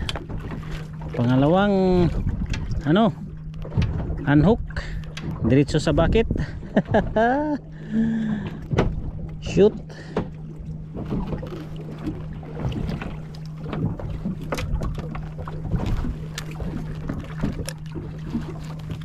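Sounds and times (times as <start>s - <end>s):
steady low hum: 0.0s - 19.0s
water slapping against boat hull: 0.0s - 19.0s
wind on microphone: 3.9s - 7.1s.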